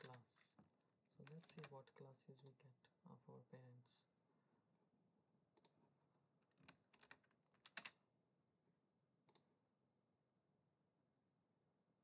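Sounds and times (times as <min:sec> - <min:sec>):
keyboard keystrokes: 0:06.6 - 0:08.0.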